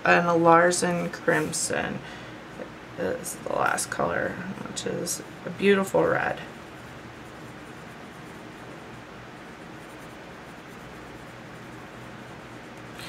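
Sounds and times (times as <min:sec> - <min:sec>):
colored pencil scratching on paper: 0:05.5 - 0:13.0.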